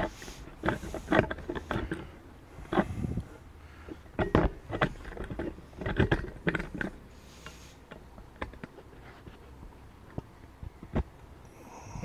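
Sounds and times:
mower knocking and rattling: 3.8s - 7.1s.

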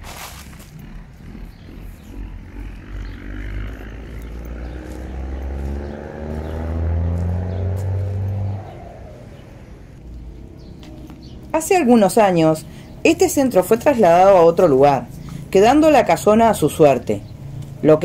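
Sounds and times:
vehicle engine passing by: 0.0s - 18.0s.

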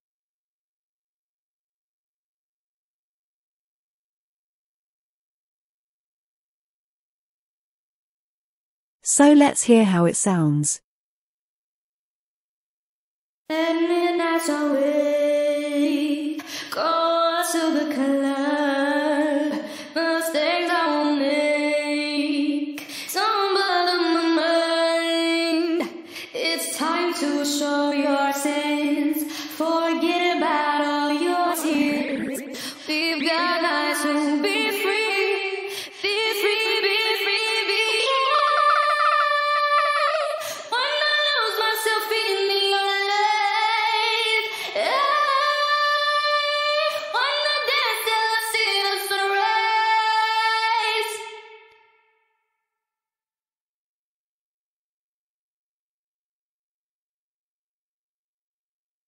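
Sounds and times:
woman singing with reverb: 13.5s - 51.7s
woman singing long held notes: 26.4s - 41.7s.

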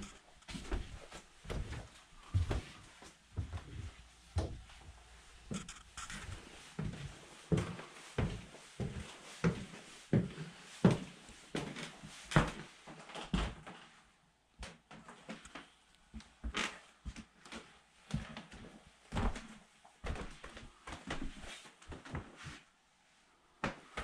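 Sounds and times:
footsteps on wooden floors: 0.0s - 13.8s, 16.2s - 22.6s.

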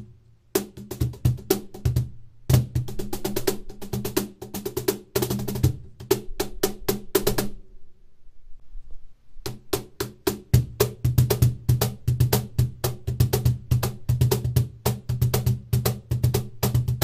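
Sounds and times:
cajon slaps and bass tones: 0.0s - 7.6s, 9.4s - 17.0s.

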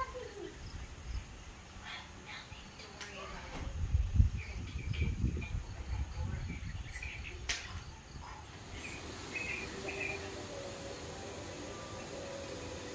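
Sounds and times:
high chirps of small creatures: 8.7s - 10.5s.

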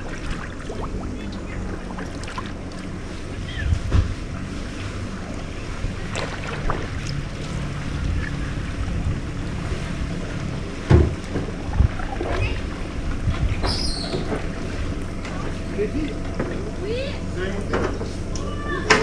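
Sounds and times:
wind on microphone: 0.0s - 14.7s
low hum: 0.0s - 19.0s
water noise: 0.0s - 19.0s.

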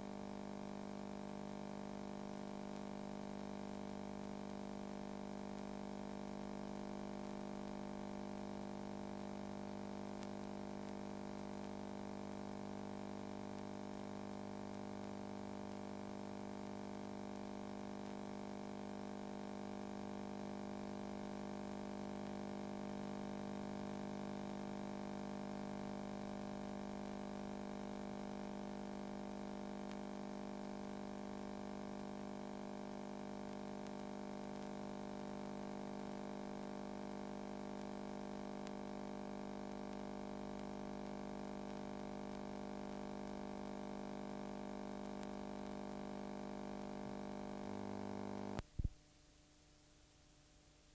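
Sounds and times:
steady low hum: 27.1s - 49.0s.

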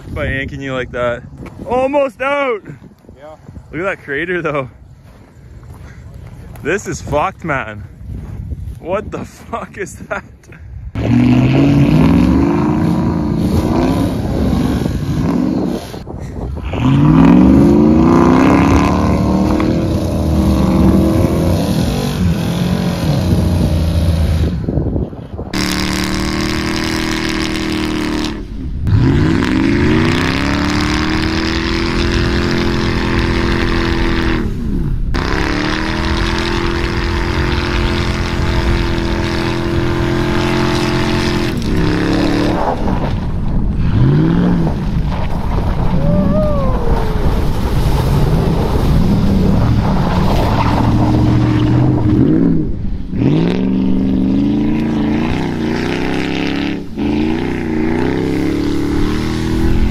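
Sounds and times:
pickup truck engine revving: 11.0s - 16.1s, 16.7s - 24.6s, 25.6s - 43.1s, 43.8s - 59.9s.

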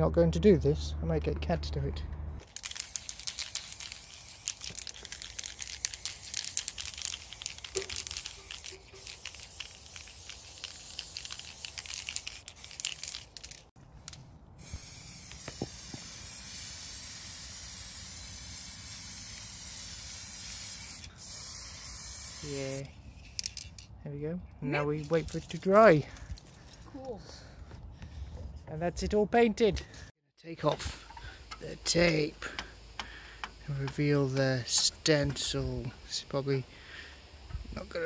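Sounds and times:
spray can hissing: 2.4s - 13.7s, 14.6s - 23.6s.

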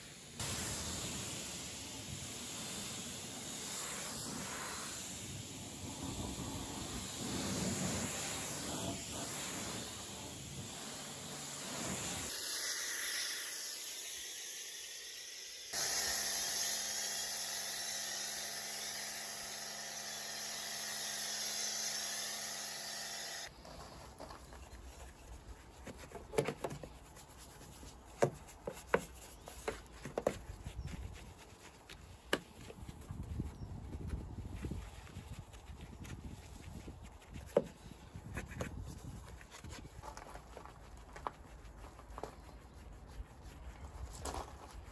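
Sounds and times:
pressure washer spraying: 0.4s - 23.5s
brush scrubbing: 2.5s - 12.4s, 23.7s - 44.9s.

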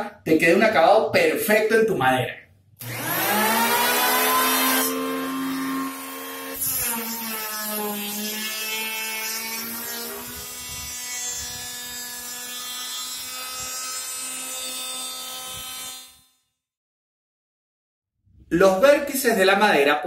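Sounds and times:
electric planer shaving wood: 2.8s - 16.2s.

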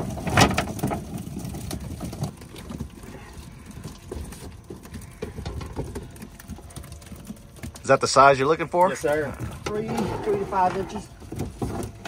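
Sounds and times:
net and fish clattering: 0.0s - 12.0s.

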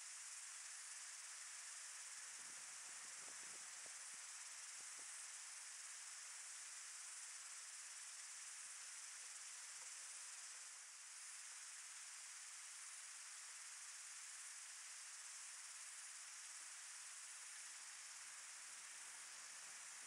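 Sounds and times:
insect chorus droning: 0.0s - 20.0s.

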